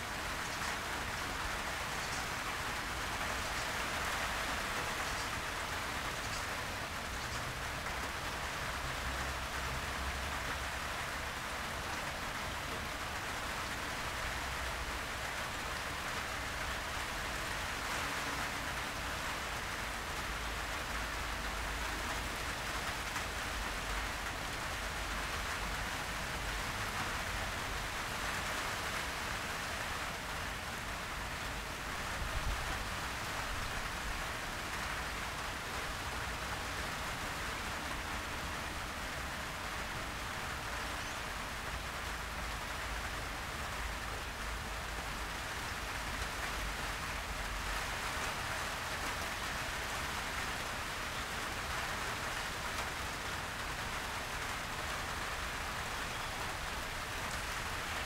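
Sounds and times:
heavy rain falling: 0.0 - 58.0.

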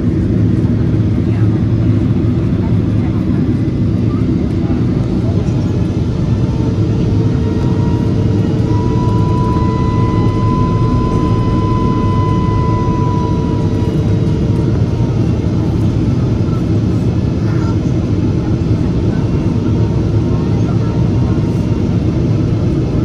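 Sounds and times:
jet engine and airflow noise: 0.0 - 23.0
thin whine: 5.5 - 16.2.

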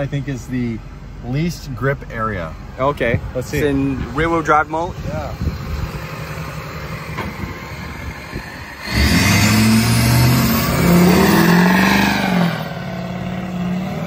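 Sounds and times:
engine idling and revving: 0.0 - 14.0
tires spinning: 5.3 - 14.0.

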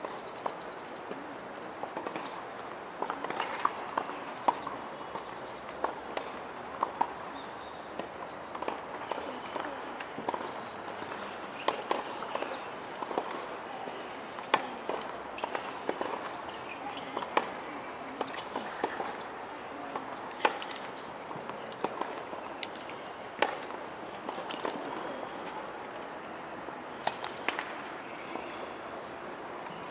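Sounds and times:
tennis balls struck by rackets: 3.0 - 7.2, 7.9 - 26.0, 26.9 - 28.5.

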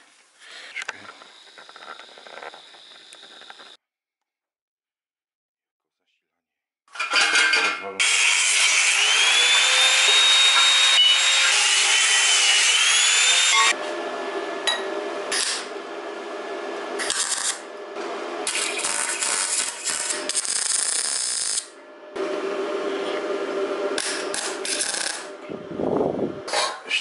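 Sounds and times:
angle grinder cutting steel: 8.0 - 13.8, 17.0 - 17.8, 18.4 - 22.3, 23.9 - 25.4
electric welding crackle: 15.3 - 15.7, 17.0 - 17.7, 18.4 - 21.8, 24.0 - 25.4.

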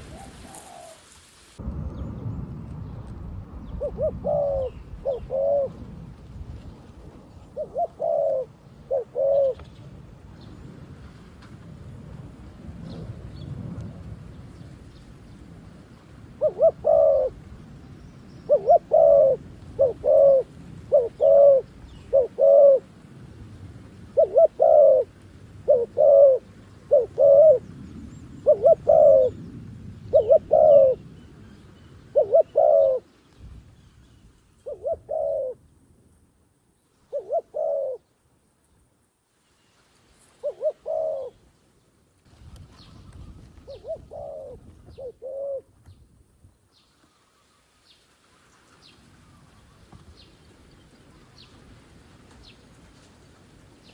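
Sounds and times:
dove cooing: 0.0 - 1.1, 3.8 - 5.8, 7.4 - 9.8, 16.4 - 17.5, 18.5 - 23.0, 24.1 - 27.7, 28.4 - 29.5, 30.1 - 31.1, 32.0 - 33.1, 34.6 - 35.6, 37.1 - 38.1, 40.4 - 41.4, 42.5 - 45.8.

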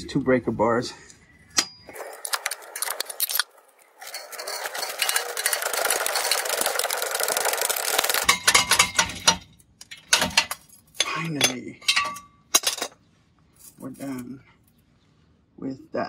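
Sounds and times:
metal clinks: 4.0 - 13.0.

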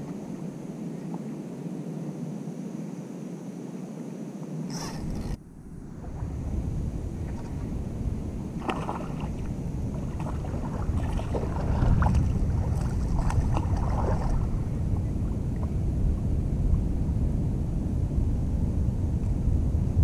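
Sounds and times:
wind buffeting microphone: 4.7 - 20.0
fish thrashing splashes: 8.6 - 14.8.

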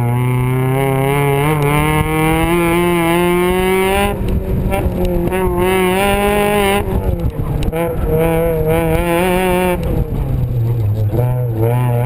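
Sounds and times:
sports car engine accelerating: 0.0 - 12.0
wind rushing: 1.8 - 10.6.

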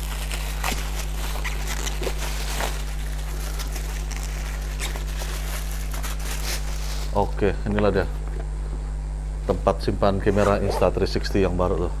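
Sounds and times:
plastic wrapping crinkling: 0.0 - 7.5
low electrical hum: 0.0 - 12.0.

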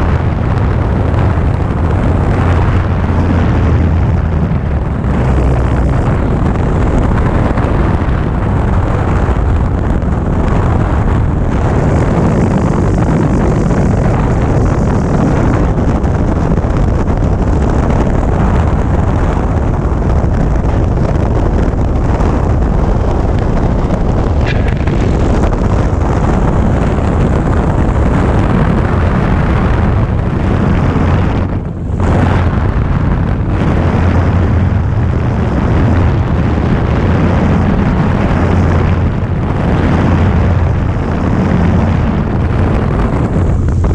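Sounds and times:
light airplane engine and propeller: 0.0 - 43.9
wind rush on microphone: 0.0 - 43.9.

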